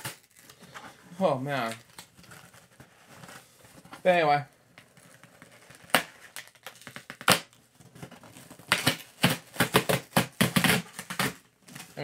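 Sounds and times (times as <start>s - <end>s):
packaging cracking: 0.0s - 0.6s
packaging crinkling and tearing: 0.0s - 0.8s, 1.6s - 3.4s, 4.8s - 12.0s.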